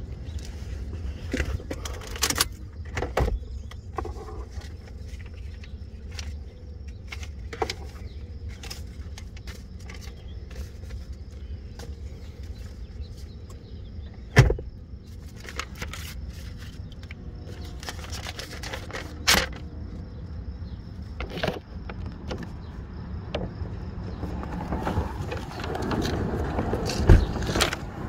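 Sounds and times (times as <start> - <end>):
car door opening: 24.5 - 27.8.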